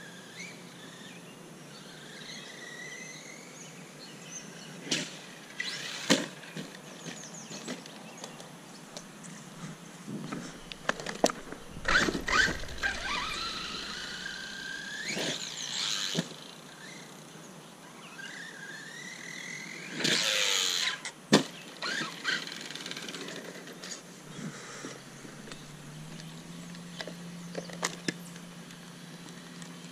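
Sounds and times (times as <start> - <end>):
electric motor whining: 10.2 - 17.1, 24.3 - 27.6
toy truck hitting ground: 10.6 - 16.4.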